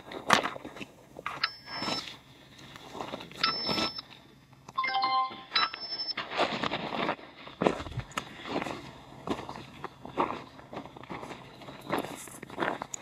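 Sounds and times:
footsteps on stony soil: 0.0 - 4.3, 5.3 - 13.0
short electronic beeps: 1.4 - 2.2, 3.4 - 4.1, 4.8 - 6.2
multi-note chime: 4.8 - 6.1.

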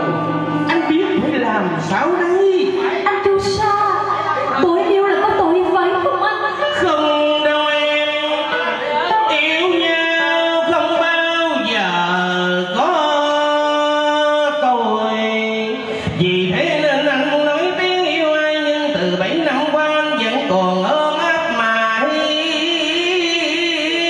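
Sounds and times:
electric guitar: 0.0 - 1.9
man singing opera: 6.8 - 24.0.

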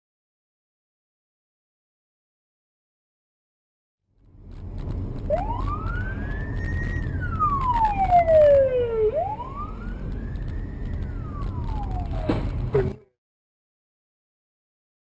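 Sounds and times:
car rumbling on the move: 4.1 - 13.1
police siren wailing: 5.3 - 12.9.

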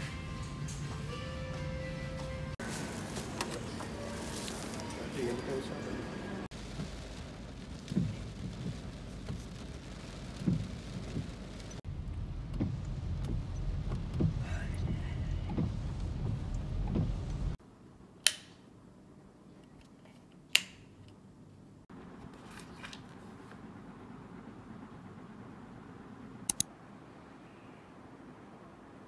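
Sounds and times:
car and traffic rumble: 0.0 - 17.8, 20.3 - 29.0
heavy rain on car: 6.4 - 17.6
dull knocks: 7.9 - 9.5, 10.4 - 11.4, 12.5 - 17.6
light switch clicks: 18.2 - 18.5, 20.5 - 20.8, 26.5 - 26.7.

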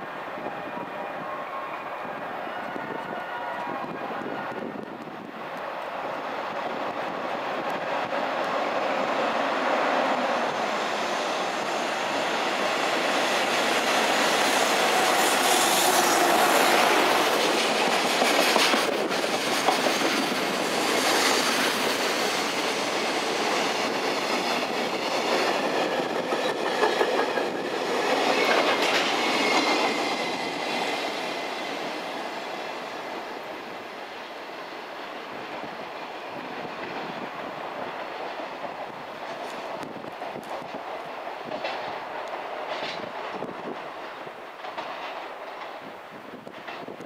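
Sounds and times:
freight train passing: 0.0 - 47.0.

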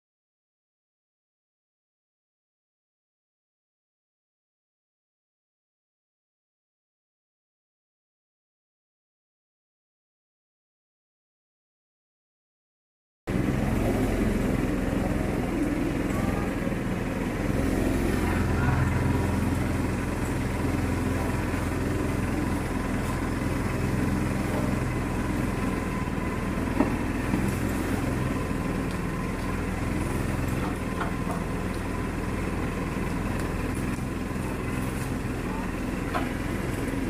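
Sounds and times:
small engine humming: 13.3 - 37.0
faint background voices: 13.6 - 23.3.

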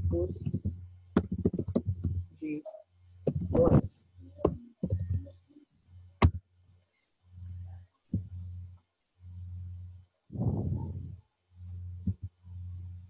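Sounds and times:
keyboard and mouse clicks: 0.4 - 2.2, 4.4 - 5.3
low hum: 7.4 - 13.0.

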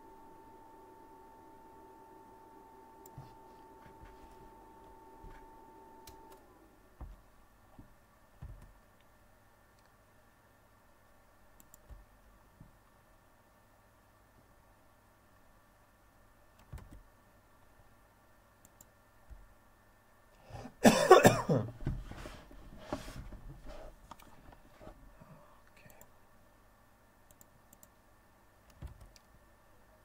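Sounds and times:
person coughing: 20.5 - 21.8.

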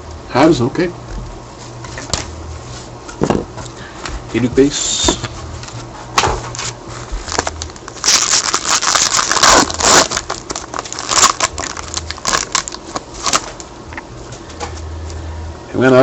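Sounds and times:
card pack wrapper tearing and crinkling: 6.6 - 13.7.

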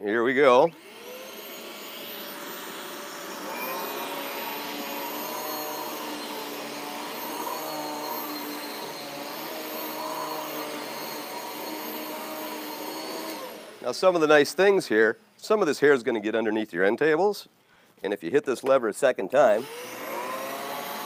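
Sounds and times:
vacuum cleaner motor whine: 0.6 - 14.5, 19.6 - 21.0.

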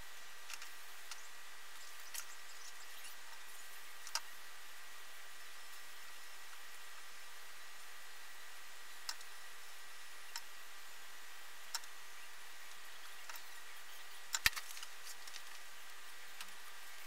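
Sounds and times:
steady hiss: 0.0 - 17.0
hands handling wires and tools: 14.3 - 15.7.

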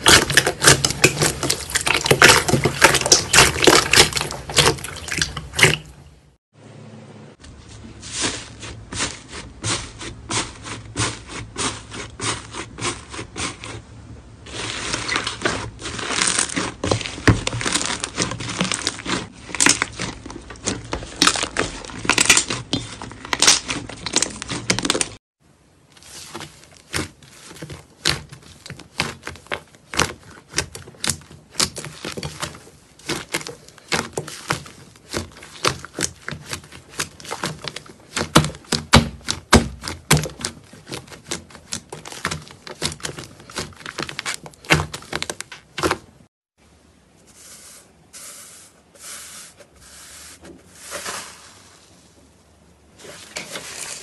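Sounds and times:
crackling and popping slime: 0.0 - 5.9, 14.7 - 25.2
hands squishing thick slime: 0.0 - 6.2, 7.9 - 25.2, 25.9 - 46.3.

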